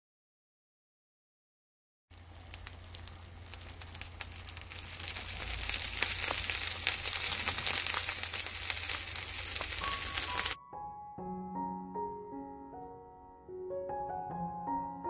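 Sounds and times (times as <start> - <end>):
steady low hum: 2.1 - 9.8
food sizzling in a frying pan: 2.1 - 10.6.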